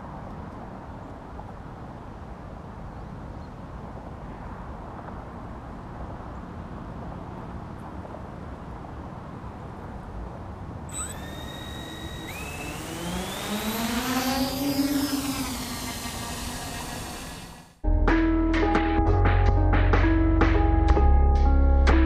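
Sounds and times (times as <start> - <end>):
quadcopter motors whining: 10.9 - 17.8.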